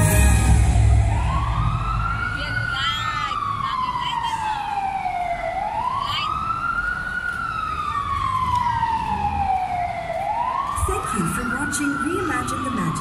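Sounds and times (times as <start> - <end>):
siren wailing: 0.0 - 13.0.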